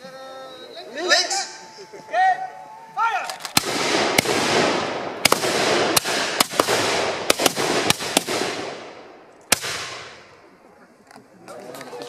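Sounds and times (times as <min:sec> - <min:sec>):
musket shots echoing: 0:03.2 - 0:10.3.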